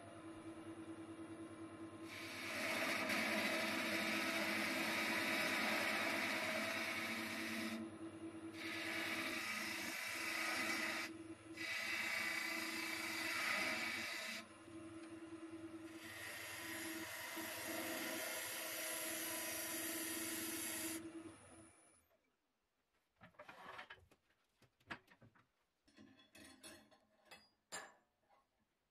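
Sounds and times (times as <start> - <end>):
wood lathe motor hum: 0.5 - 21.8
turning tool cutting wood: 2.0 - 21.1.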